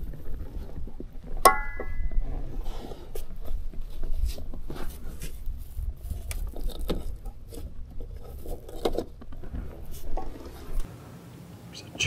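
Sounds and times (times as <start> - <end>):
line clicking and scraping on metal post: 3.5 - 10.9.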